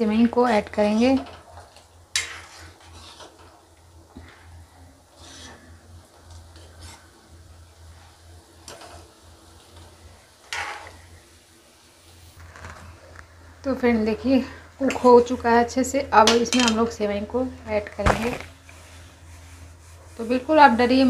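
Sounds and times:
steady low hum: 0:00.0 - 0:21.0
metal ladle scraping a pan: 0:02.1 - 0:03.6, 0:05.1 - 0:05.7, 0:06.5 - 0:07.2, 0:10.4 - 0:11.0.

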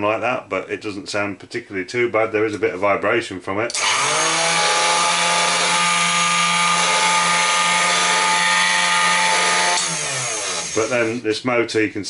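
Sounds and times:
engraving machine motor humming: 0:03.7 - 0:11.2.

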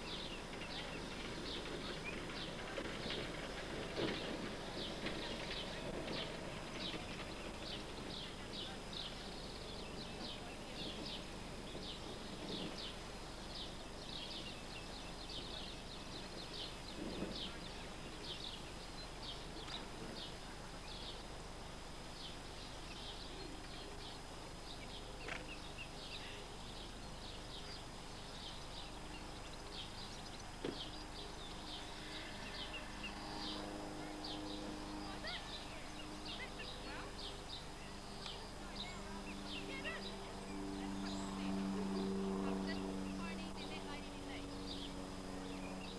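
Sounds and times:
steady background hiss: 0:00.0 - 0:45.9
faint voice: 0:31.2 - 0:44.9.

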